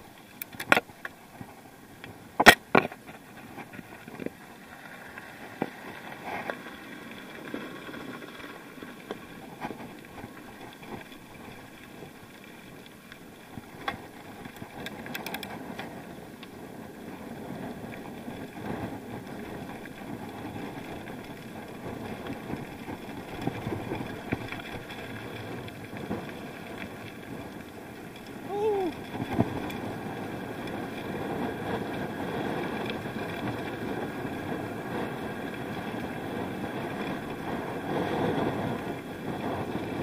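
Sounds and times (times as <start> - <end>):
bicycle tyres crunching on gravel: 0.0 - 40.0
bike rattling: 0.0 - 40.0
wind on microphone: 28.3 - 40.0.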